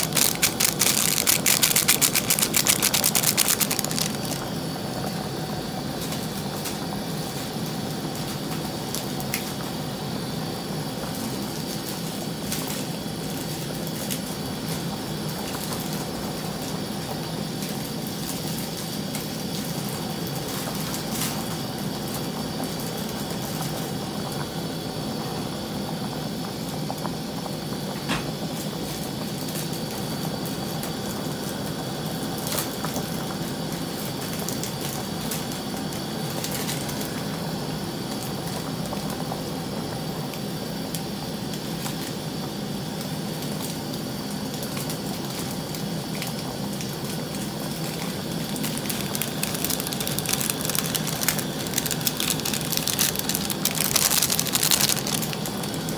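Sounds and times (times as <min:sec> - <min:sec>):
rapid crackling: 0:00.0 - 0:04.5, 0:48.4 - 0:55.9
soup boiling and bubbling: 0:00.0 - 0:55.9.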